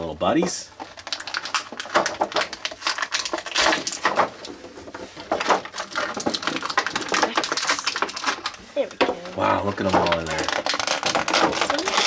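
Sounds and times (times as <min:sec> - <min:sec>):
plastic packaging crackling: 0:00.0 - 0:12.0.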